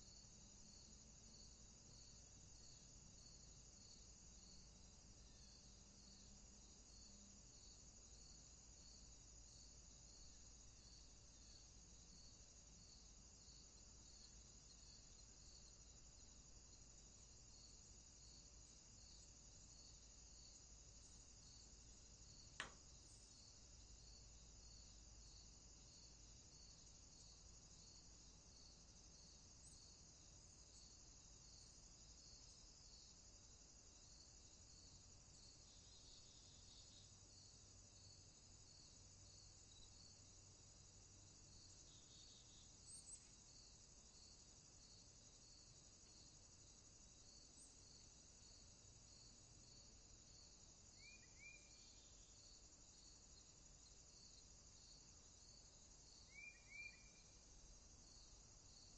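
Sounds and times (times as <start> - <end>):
crickets chirring: 0.0 - 58.9
sharp click: 22.6 - 22.8.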